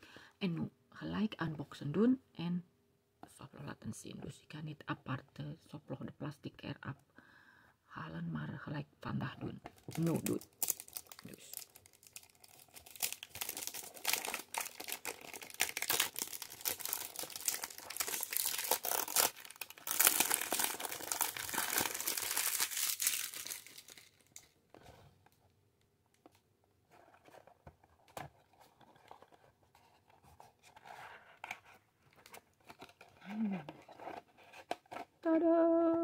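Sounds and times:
cellophane crinkling and tearing: 9.8 - 24.6.

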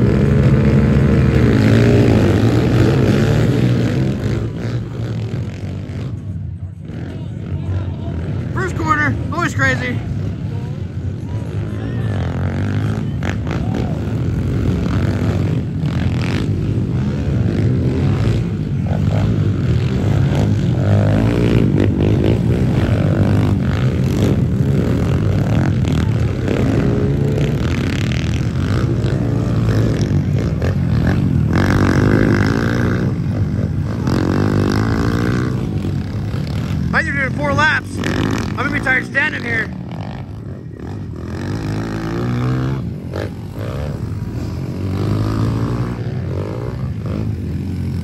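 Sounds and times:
pit bike engines revving: 0.0 - 48.0.

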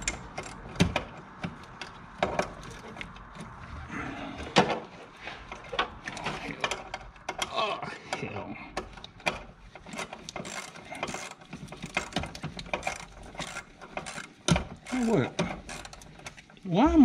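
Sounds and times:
hand ratchet clicking: 8.9 - 16.4.

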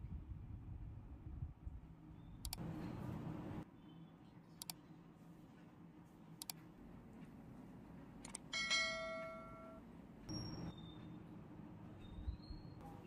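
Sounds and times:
bell-like ding: 8.6 - 10.7.

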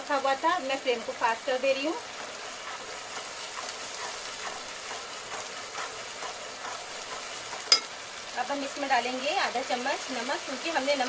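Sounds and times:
paste sizzling in hot oil: 0.0 - 11.0
metal spatula stirring: 1.6 - 8.2.

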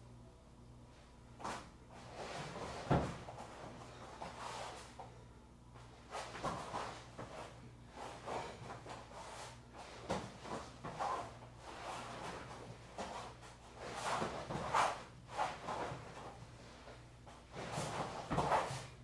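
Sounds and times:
faint low hum: 0.0 - 19.0
body scuffing on a foam mat: 5.8 - 19.0.

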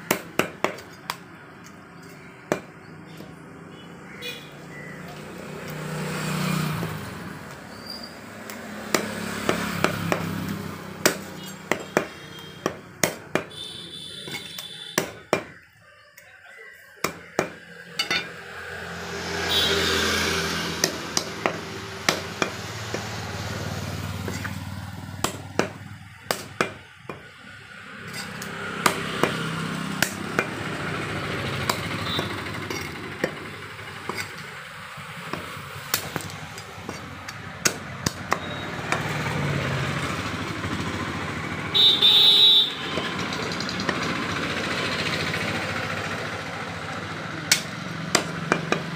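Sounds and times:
cleaver chopping meat and bone: 0.0 - 3.4, 8.4 - 15.7, 17.0 - 39.6, 47.5 - 48.9.

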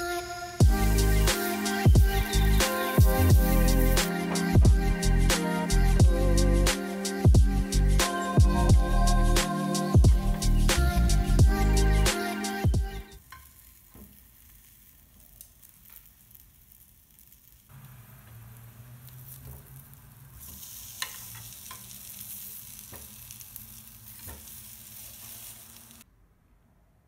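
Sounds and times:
food sizzling in a pan: 0.0 - 4.6, 9.6 - 26.0.

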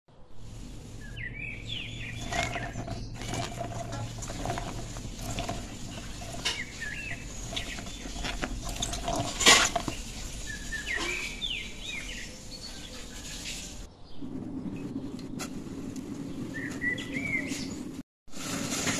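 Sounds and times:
small birds chirping: 0.1 - 18.0
vegetables tossed in metal bowl: 2.0 - 12.2.

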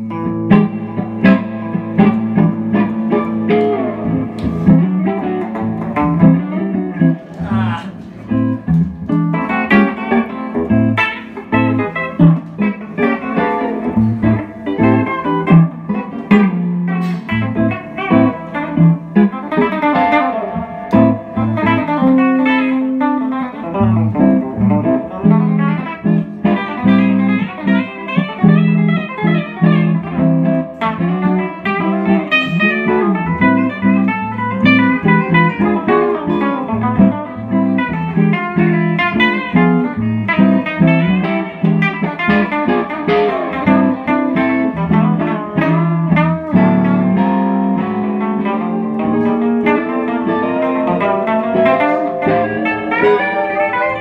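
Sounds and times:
guitars jamming: 0.0 - 54.0.

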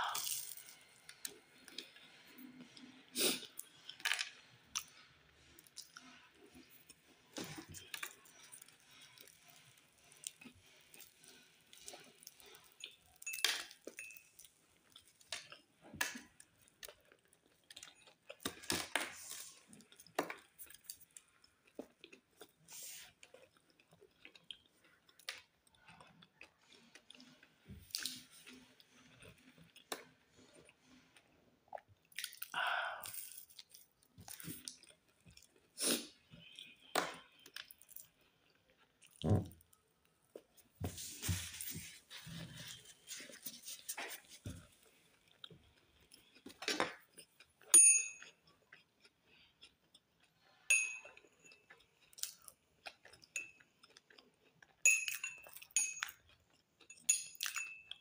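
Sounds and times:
person chewing crusty bread: 0.0 - 58.0.

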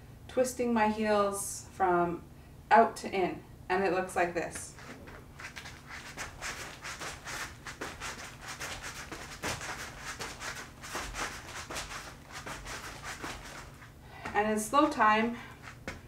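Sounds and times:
moccasins scuffing on foam mat: 4.5 - 16.0.

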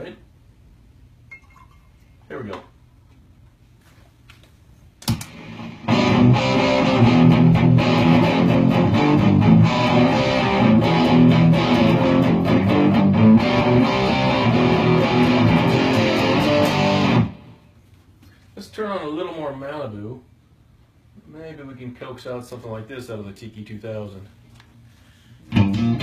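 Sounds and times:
sharp click: 5.0 - 5.4
distorted electric guitar chords: 5.1 - 17.7, 25.5 - 26.0.

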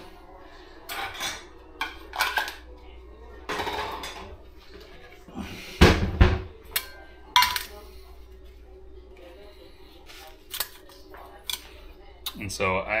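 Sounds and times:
metal cookware clanking: 0.8 - 2.6, 3.5 - 4.4, 6.2 - 7.9.

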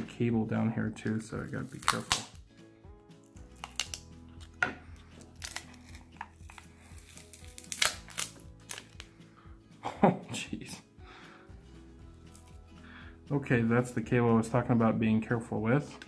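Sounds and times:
soft background music: 0.0 - 16.0
battery pouch crinkling and snapping: 1.4 - 2.4, 3.2 - 4.6, 5.2 - 9.1.

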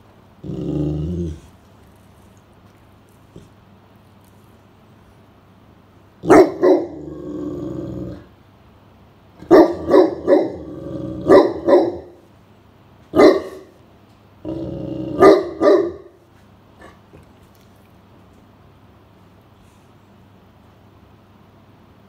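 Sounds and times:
dog growling low: 0.4 - 2.2, 6.8 - 8.3, 10.4 - 11.4, 14.4 - 15.3
dog barking deeply: 6.2 - 8.2, 9.4 - 12.2, 13.1 - 13.7, 14.4 - 16.2.

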